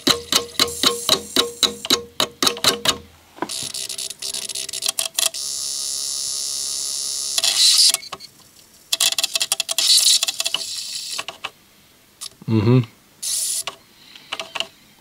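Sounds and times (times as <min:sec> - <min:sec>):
disc drive high whine: 0:00.0 - 0:02.0, 0:05.3 - 0:08.5
disc drive clicks: 0:00.0 - 0:05.4
rapid rattling clicks: 0:00.0 - 0:05.4, 0:08.9 - 0:11.6.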